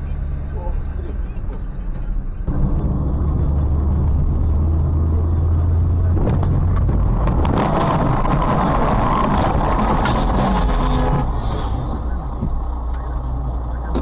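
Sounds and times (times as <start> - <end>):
car engine and road noise: 0.0 - 14.0
rough harsh noise: 6.1 - 12.2.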